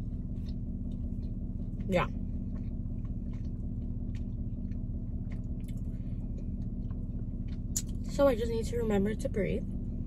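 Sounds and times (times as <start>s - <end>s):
low hum inside car: 0.0s - 10.0s
person chewing with mouth clicks: 0.2s - 8.1s.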